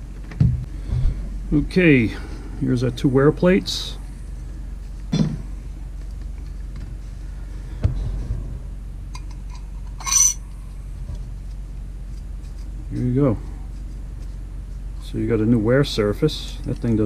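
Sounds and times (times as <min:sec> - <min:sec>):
steady low hum: 0:00.0 - 0:17.0
bright metallic clink: 0:09.2 - 0:10.4.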